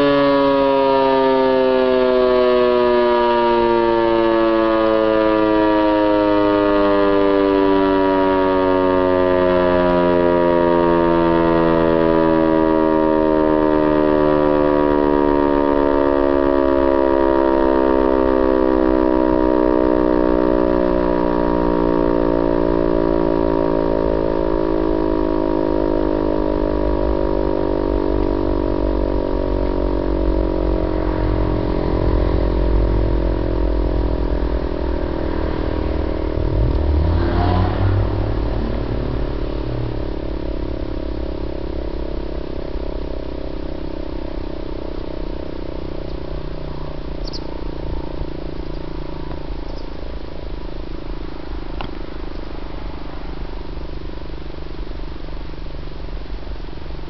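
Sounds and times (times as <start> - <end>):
civil defence siren winding down: 0.0 - 57.0
passing vehicle engine rumble: 24.0 - 56.8.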